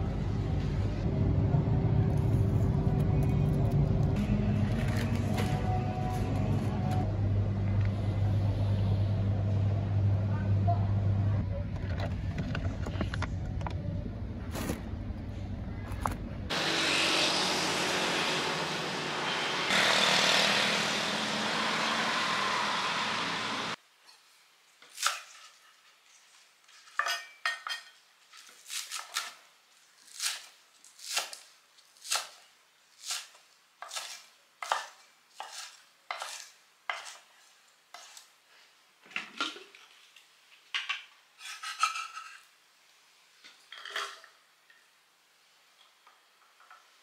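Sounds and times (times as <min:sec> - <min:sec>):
noisy supermarket background: 0:00.0 - 0:17.8.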